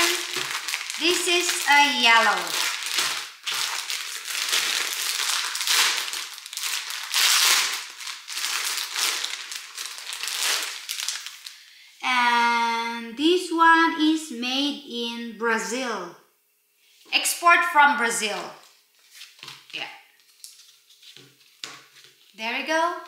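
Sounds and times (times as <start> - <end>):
plastic bag crinkling: 0.0 - 11.7, 18.6 - 22.4.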